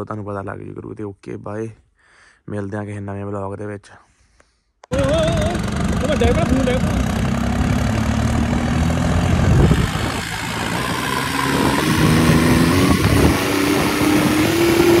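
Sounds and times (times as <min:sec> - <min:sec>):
tractor diesel engine running: 0:04.9 - 0:15.0.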